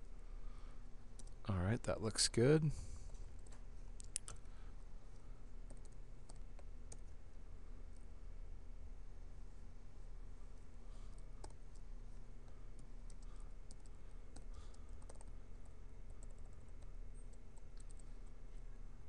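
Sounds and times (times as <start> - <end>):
steady low hum: 0.0 - 19.0.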